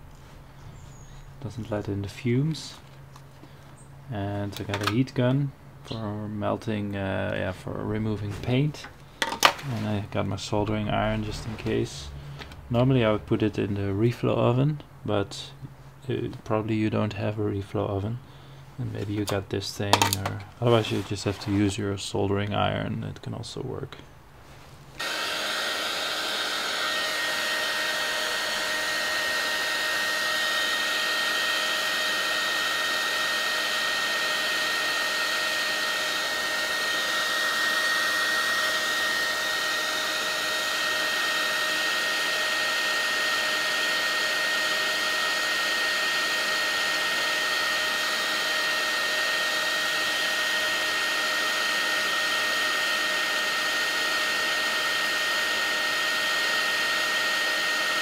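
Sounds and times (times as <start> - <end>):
heat gun blowing air: 25.0 - 58.0.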